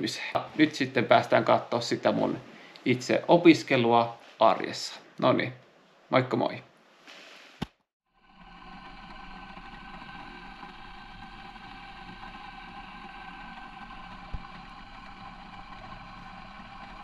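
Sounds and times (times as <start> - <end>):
electric toothbrush buzzing: 8.3 - 17.0.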